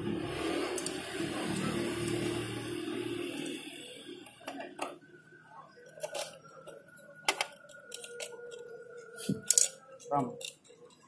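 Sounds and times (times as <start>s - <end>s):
screwdriver clicking on metal: 6.0s - 11.0s.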